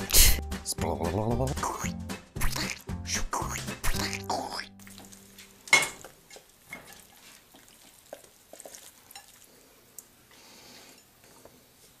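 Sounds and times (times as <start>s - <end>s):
wet pasta slops: 4.8s - 10.2s
utensil clinking on plate: 5.4s - 7.4s, 8.6s - 9.4s.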